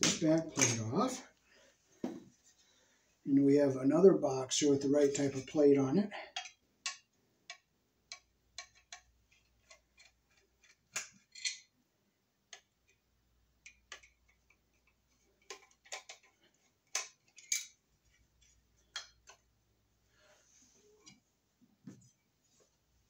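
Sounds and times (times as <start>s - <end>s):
screwdriver clicking and scraping metal: 8.1s - 11.6s.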